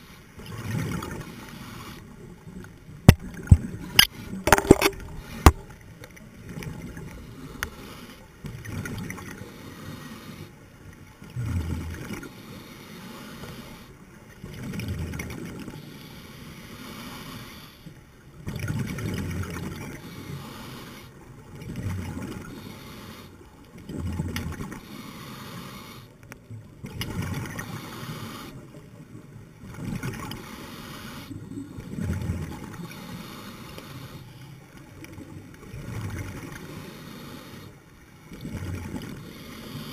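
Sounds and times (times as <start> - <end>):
water noise: 0.0 - 39.9
exhaled bubbles underwater: 3.0 - 5.7, 35.0 - 36.7.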